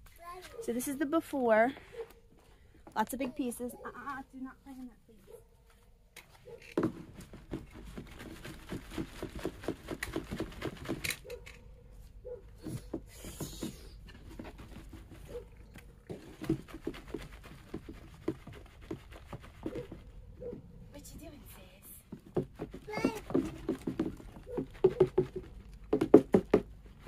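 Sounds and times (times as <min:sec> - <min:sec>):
soil rattling through a plastic screen: 0:06.6 - 0:11.8, 0:12.5 - 0:20.5, 0:22.0 - 0:27.0.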